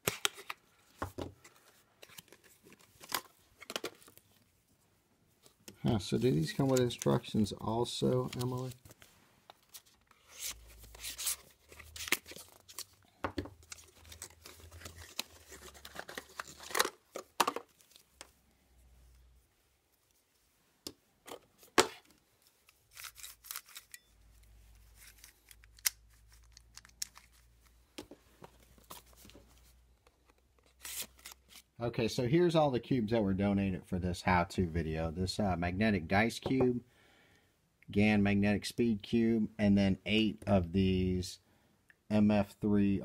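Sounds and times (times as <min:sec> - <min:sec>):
plastic cube being turned: 0:13.6 - 0:18.3, 0:24.9 - 0:27.4.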